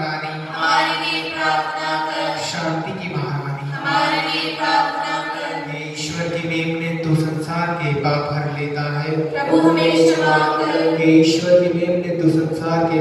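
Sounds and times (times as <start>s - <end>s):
group chanting prayers in unison: 0.0s - 6.5s, 9.0s - 12.2s.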